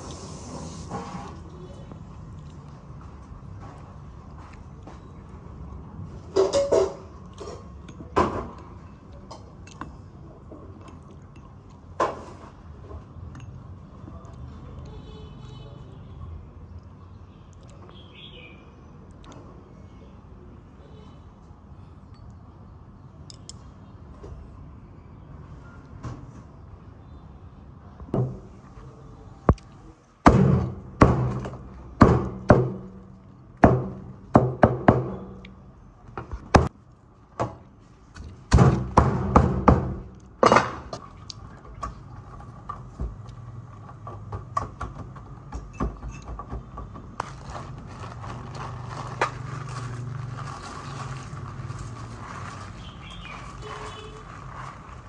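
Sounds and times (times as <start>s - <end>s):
coarse salt pouring: 0.0s - 1.2s.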